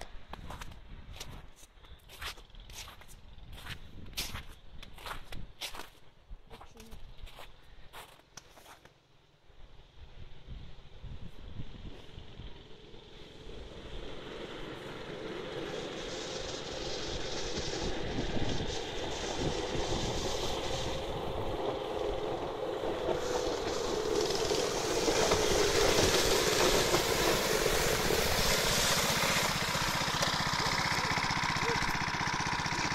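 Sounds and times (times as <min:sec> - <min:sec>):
small petrol engine running: 0:09.8 - 0:32.9.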